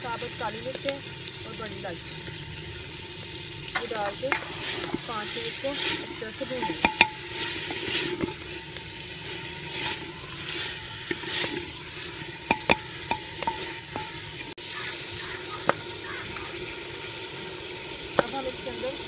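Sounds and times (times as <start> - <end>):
vegetables sizzling in hot oil: 0.0 - 19.0
spoon stirring and scraping pot: 3.8 - 14.5
spoon knocking against pot: 6.6 - 7.3, 12.5 - 14.3.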